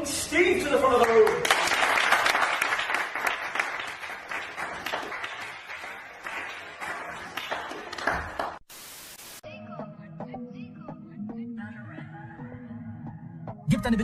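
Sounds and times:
audience applause: 0:01.0 - 0:08.6
steady hiss: 0:08.7 - 0:09.4.

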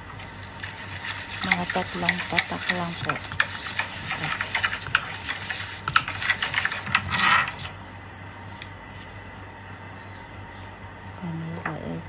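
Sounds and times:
whisk rattling against bowl: 0:00.5 - 0:07.7.

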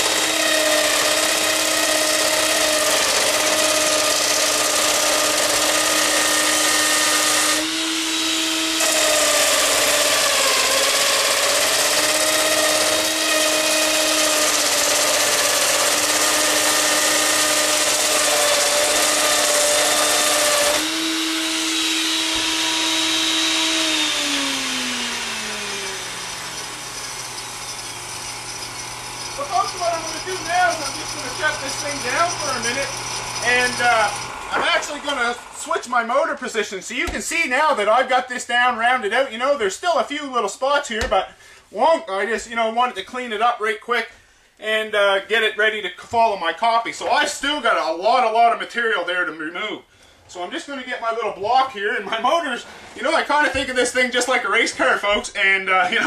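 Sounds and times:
router whining: 0:00.0 - 0:35.7
router cutting wood: 0:00.0 - 0:35.8, 0:52.0 - 0:54.4.

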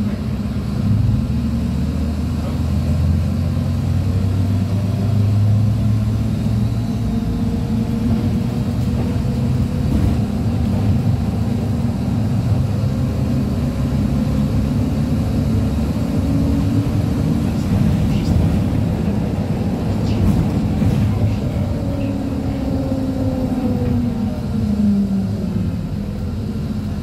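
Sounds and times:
bus diesel engine humming: 0:00.0 - 0:27.0
road noise: 0:00.0 - 0:27.0.

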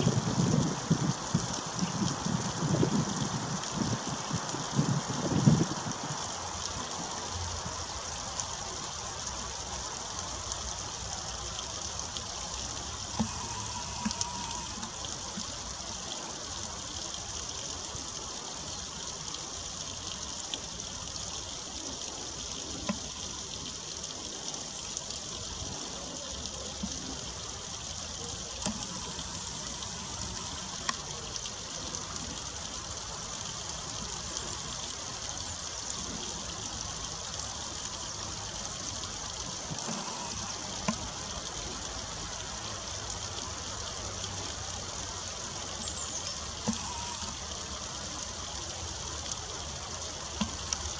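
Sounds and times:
water trickling over rocks: 0:00.0 - 0:50.9
faint clicks: 0:11.6 - 0:18.0, 0:18.6 - 0:43.8, 0:45.7 - 0:48.4, 0:49.1 - 0:50.9.

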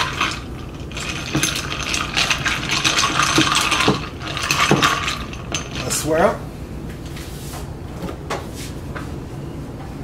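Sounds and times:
ice cubes clinking in glass: 0:00.0 - 0:06.1.

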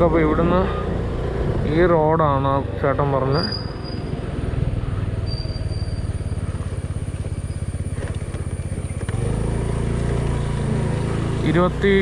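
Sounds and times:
scooter engine running: 0:03.5 - 0:12.0.

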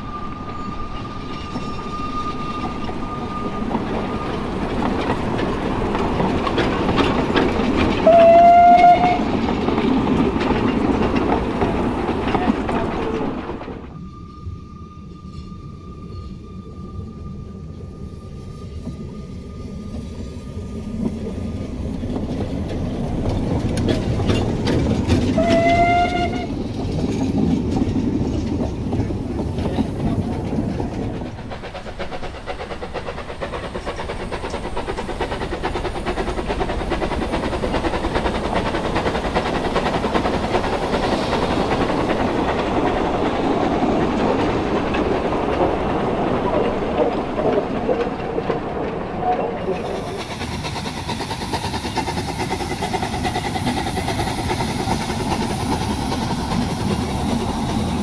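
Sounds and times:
steam locomotive running past: 0:00.0 - 0:58.0
wheels clattering over rail joints: 0:01.0 - 0:13.9, 0:21.9 - 0:50.4
steam whistle: 0:08.0 - 0:09.3, 0:25.3 - 0:26.6.

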